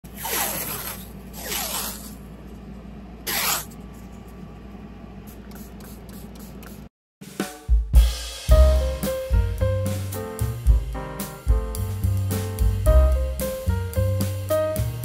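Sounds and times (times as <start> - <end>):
masking tape pulled off roll: 0.1 - 2.2, 3.3 - 3.8.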